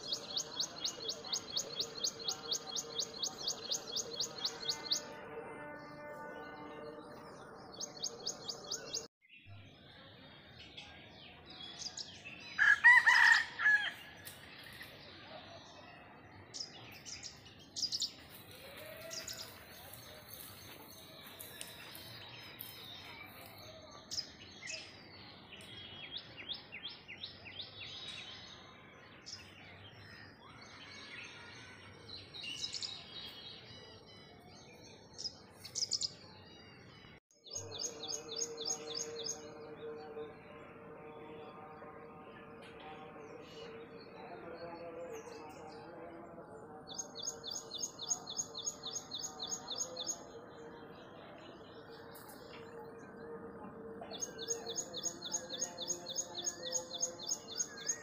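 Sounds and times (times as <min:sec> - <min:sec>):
rooster crowing: 0:12.6 - 0:14.0
small birds chirping: 0:54.0 - 0:58.0.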